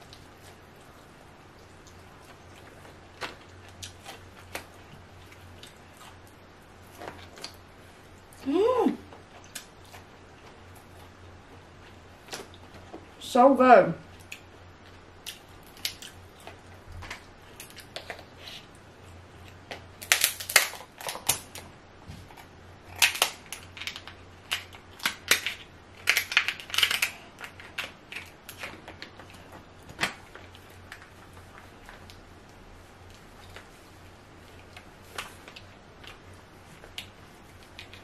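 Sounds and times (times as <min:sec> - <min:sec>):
crab shells cracking: 0:15.2 - 0:18.3, 0:19.6 - 0:21.6, 0:22.8 - 0:31.1.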